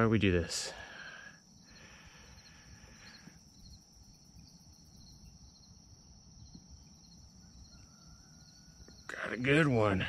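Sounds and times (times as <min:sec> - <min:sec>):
night insects trilling: 0:00.0 - 0:10.0.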